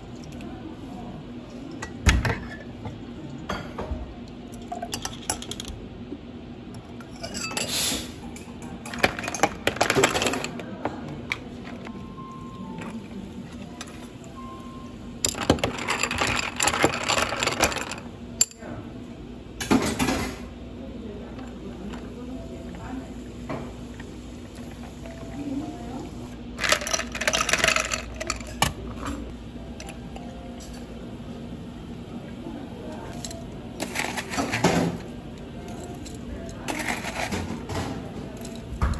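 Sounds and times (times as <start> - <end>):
ice being scooped: 36.7 - 37.4.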